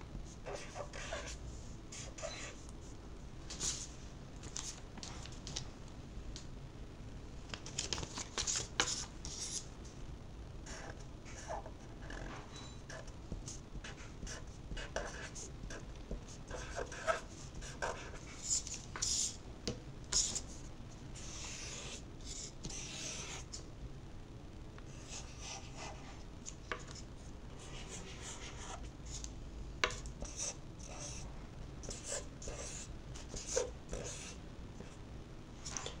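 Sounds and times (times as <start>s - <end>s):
marker scratching on paper: 0.4s - 2.6s, 12.9s - 19.4s, 21.2s - 23.4s, 27.6s - 29.2s, 30.2s - 31.2s, 31.9s - 34.4s.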